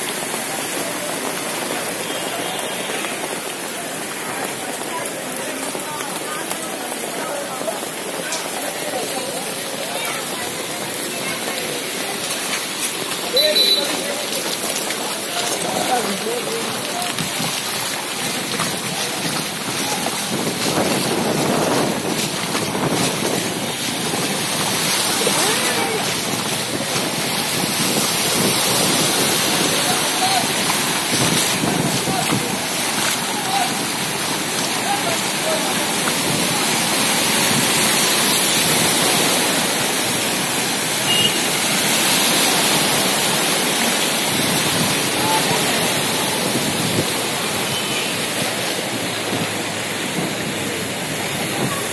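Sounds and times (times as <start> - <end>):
heavy rain: 0.0 - 51.9
wind buffeting microphone: 17.1 - 34.6, 45.8 - 47.6.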